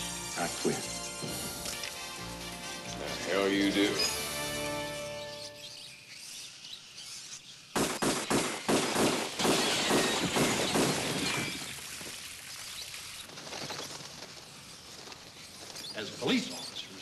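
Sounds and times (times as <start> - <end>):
glass shattering: 9.4 - 12.2.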